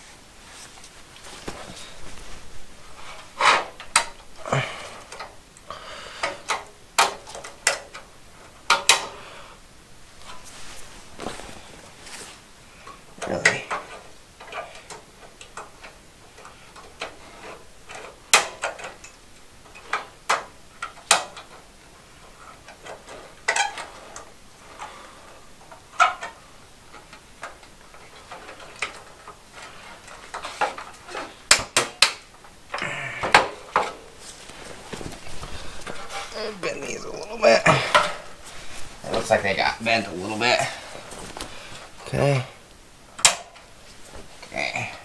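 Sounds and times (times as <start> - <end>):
fluorescent tubes clicking in sockets: 3.1 - 9.2, 12.8 - 34.1, 43.1 - 43.7.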